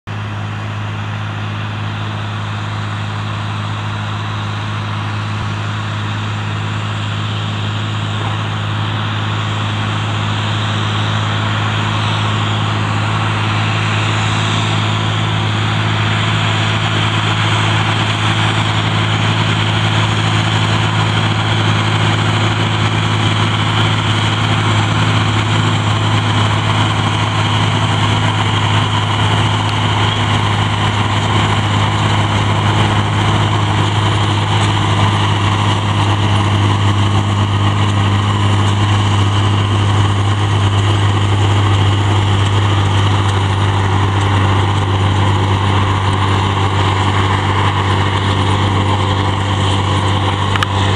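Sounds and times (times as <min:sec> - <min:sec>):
tractor diesel engine droning: 0:00.0 - 0:50.9.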